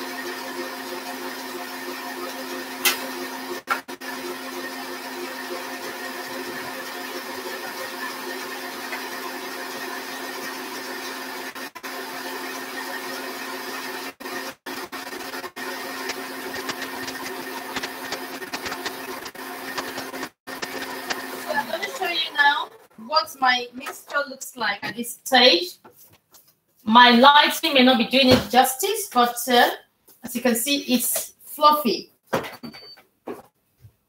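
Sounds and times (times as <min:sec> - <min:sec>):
stand mixer motor humming: 0:00.0 - 0:23.0.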